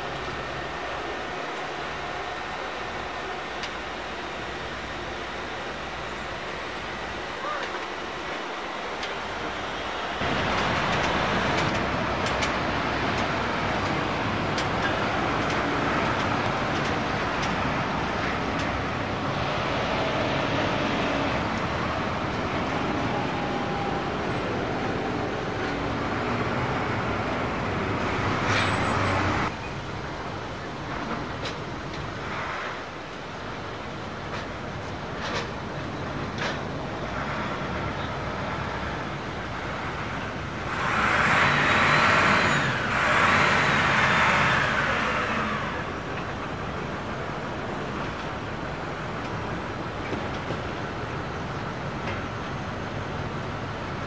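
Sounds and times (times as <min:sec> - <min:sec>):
rumble of ground vehicles: 0:00.0 - 0:54.0.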